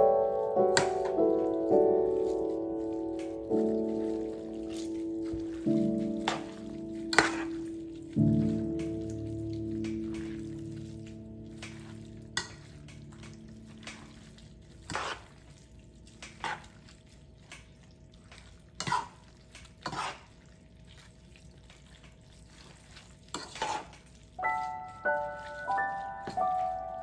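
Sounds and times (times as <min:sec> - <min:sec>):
held music chord: 0:00.0 - 0:14.2, 0:24.4 - 0:27.0.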